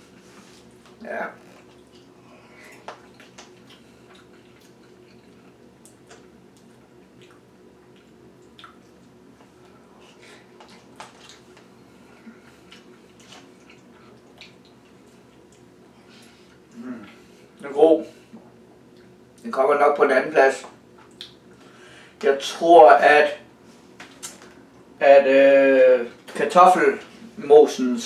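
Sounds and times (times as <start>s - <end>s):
quiet chewing: 0.1s - 17.6s, 18.3s - 19.5s, 20.9s - 21.7s.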